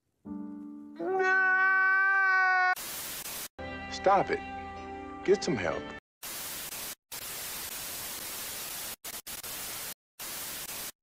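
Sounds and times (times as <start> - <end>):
tv static hiss: 2.8 - 3.5, 6.2 - 11.0.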